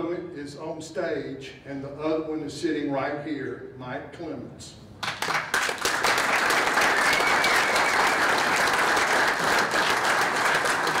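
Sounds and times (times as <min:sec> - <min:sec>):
audience applauding: 0:05.0 - 0:11.0.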